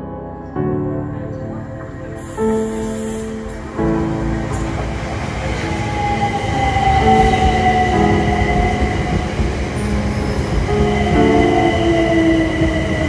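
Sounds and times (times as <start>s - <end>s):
wheels rumbling on rails: 1.4s - 13.0s.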